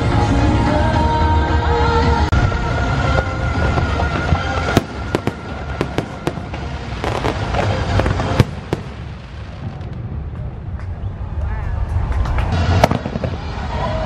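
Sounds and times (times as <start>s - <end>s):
show music: 0.0s - 9.9s
fireworks bangs and crackles: 2.3s - 14.0s.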